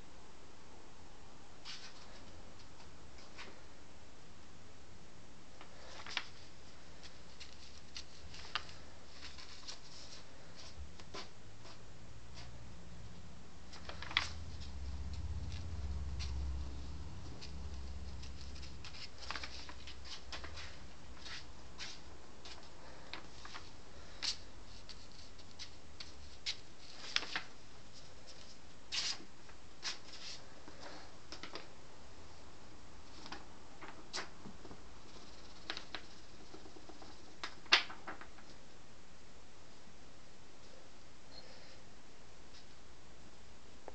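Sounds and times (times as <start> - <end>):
paper rustling and crackling: 5.6 - 11.8, 13.7 - 31.7, 33.0 - 38.6.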